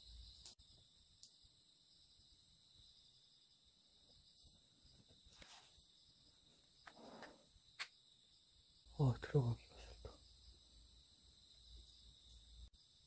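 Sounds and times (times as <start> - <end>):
crickets chirping: 0.0 - 13.0
soft rustle: 5.2 - 5.9.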